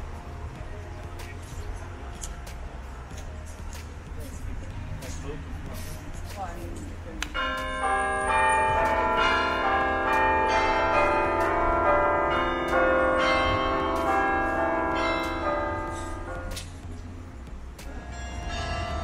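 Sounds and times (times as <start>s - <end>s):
church bells ringing: 7.3s - 16.9s, 17.9s - 19.0s.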